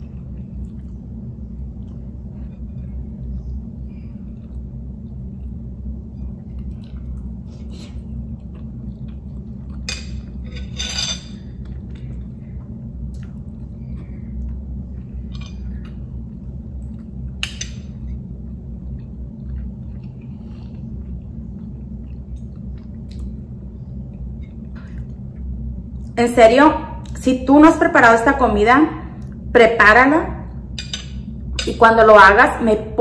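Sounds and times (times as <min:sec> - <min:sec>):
soft chewing: 0:00.0 - 0:10.8, 0:11.4 - 0:26.2
steady low hum: 0:00.0 - 0:33.0
metal spoon scraping ceramic bowl: 0:10.5 - 0:11.4.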